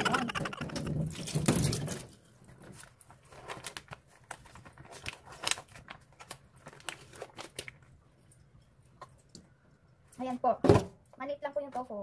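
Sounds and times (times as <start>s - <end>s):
plastic packaging crinkling: 0.1s - 8.0s.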